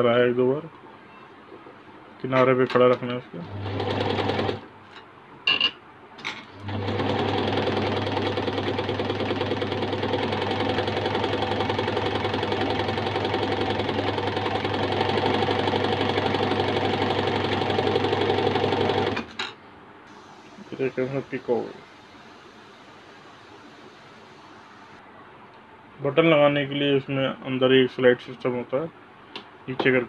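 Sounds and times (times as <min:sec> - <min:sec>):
sewing machine stitching: 0:03.5 - 0:04.6, 0:06.6 - 0:19.4.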